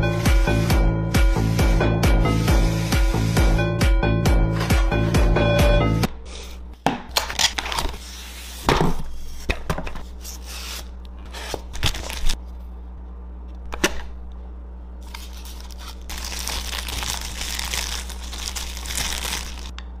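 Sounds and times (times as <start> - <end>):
music: 0.0 - 6.1
steady low hum: 7.9 - 20.0
paper and card tearing: 10.2 - 12.4, 15.0 - 19.7.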